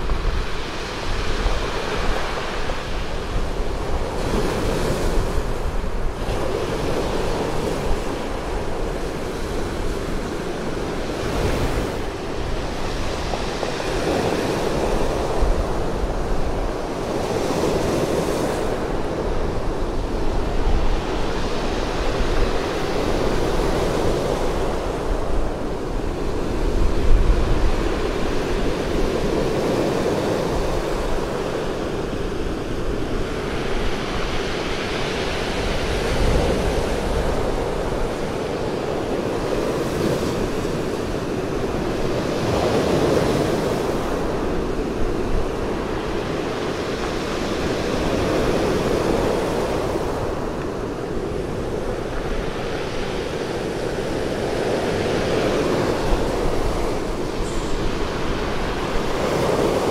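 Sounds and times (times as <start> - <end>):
surf washing on pebble beach: 0.0 - 59.9
wind rumble on microphone: 0.0 - 59.9.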